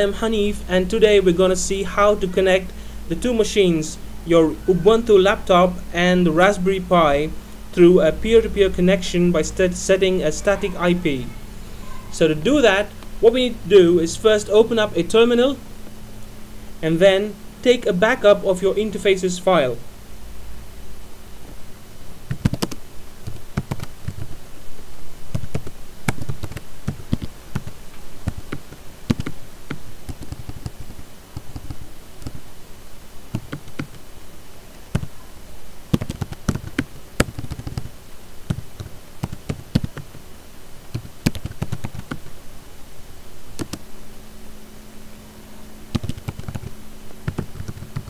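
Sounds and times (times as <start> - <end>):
typing on keyboard: 22.4 - 24.3, 25.3 - 29.4, 30.1 - 31.8, 36.0 - 37.9, 40.9 - 42.2, 45.9 - 48.0.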